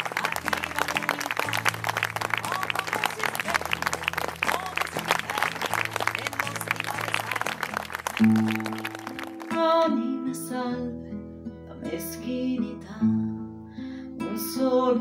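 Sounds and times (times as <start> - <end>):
woman singing: 0.0 - 7.7, 9.5 - 13.5, 14.2 - 15.0
audience applause: 0.0 - 9.6
acoustic guitar playing: 0.0 - 15.0.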